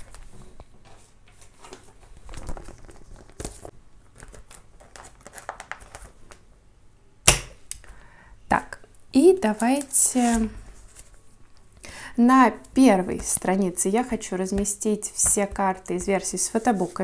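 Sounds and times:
plastic sleeves crinkling: 0:01.4 - 0:06.5.

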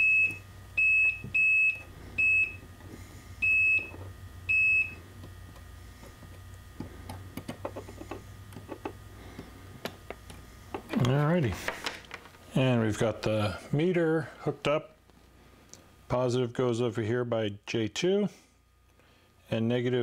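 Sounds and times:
multimeter continuity beeps: 0:00.0 - 0:02.6, 0:03.4 - 0:05.0.

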